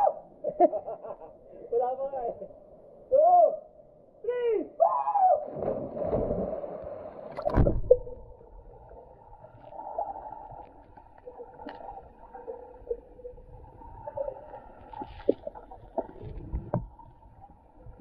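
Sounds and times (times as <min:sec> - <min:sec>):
faint underwater gurgling: 0:05.4 - 0:18.0.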